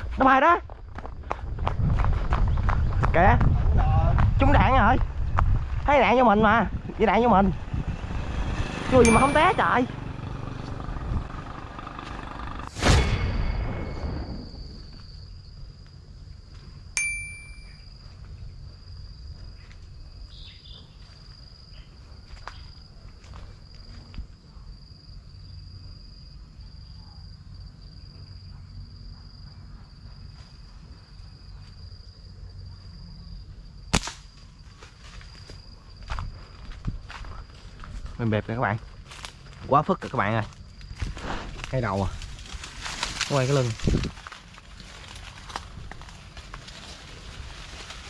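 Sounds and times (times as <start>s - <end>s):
insects trilling: 4.4s - 48.0s
ringing metallic ping: 9.0s - 9.8s, 12.8s - 14.4s, 17.0s - 17.9s.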